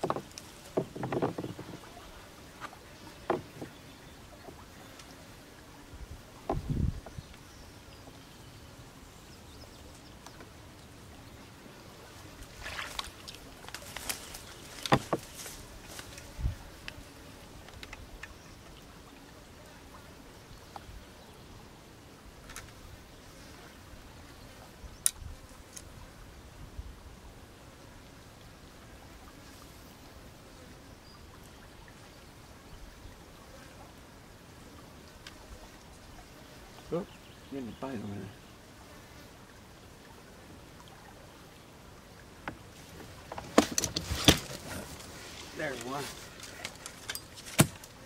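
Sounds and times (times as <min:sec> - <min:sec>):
fishing gear knocks and clatter: 0:00.0 - 0:01.8, 0:12.9 - 0:16.2, 0:43.2 - 0:48.0
soft low thumps: 0:06.5 - 0:07.2
fishing gear click: 0:45.8 - 0:47.9.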